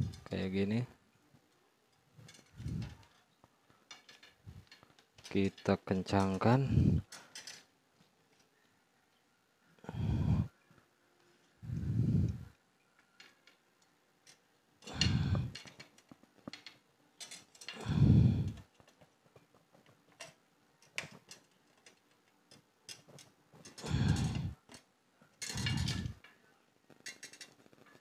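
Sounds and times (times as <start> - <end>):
loud low breaths: 9.8 - 10.6, 14.9 - 15.6, 17.7 - 18.6, 23.8 - 24.7
pliers twisting wire clicks: 19.8 - 26.3.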